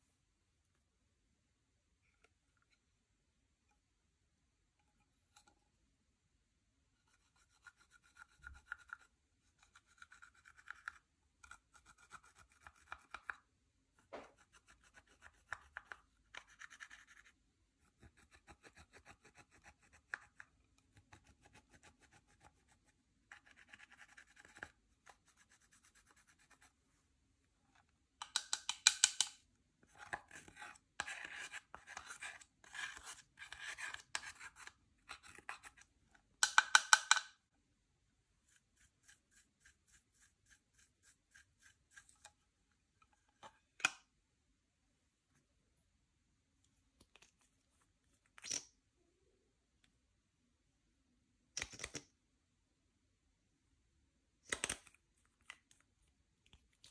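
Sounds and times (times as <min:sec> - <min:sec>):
scratchy rubbing of slime: 0:29.9 - 0:35.8, 0:38.4 - 0:42.4.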